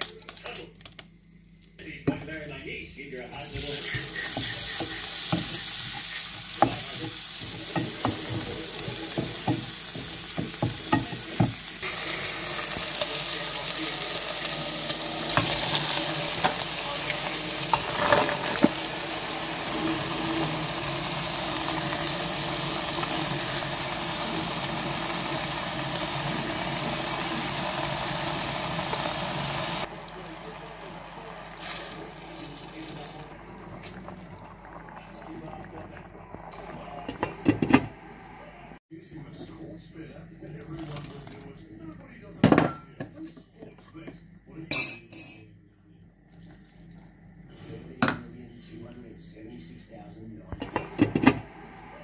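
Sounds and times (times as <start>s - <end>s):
potatoes sizzling in oil: 3.3s - 35.4s.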